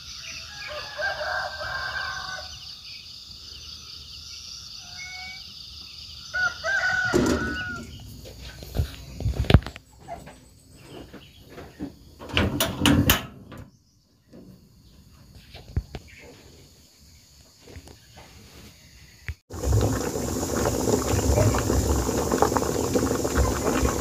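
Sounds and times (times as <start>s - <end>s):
dense steady hissing: 19.5s - 24.0s.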